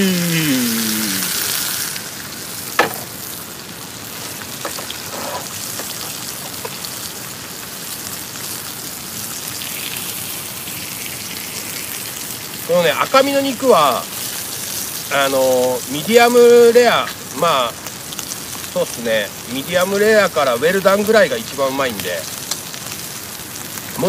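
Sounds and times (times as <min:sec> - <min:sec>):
steak sizzling in a frying pan: 0:00.1 - 0:24.0
sharp knock: 0:02.8 - 0:03.1.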